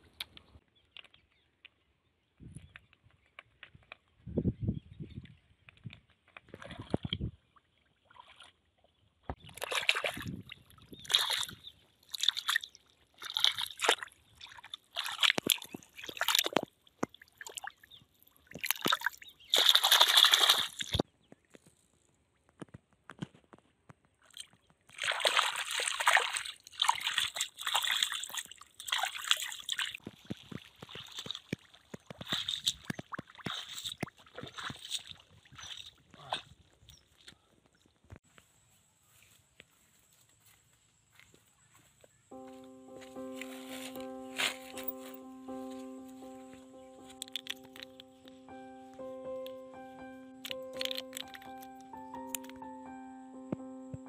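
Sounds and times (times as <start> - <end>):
hands sloshing in muddy water: 6.2 - 17.8, 18.6 - 21.0, 24.9 - 37.3
splashing wading steps: 9.4 - 21.0, 24.4 - 36.5.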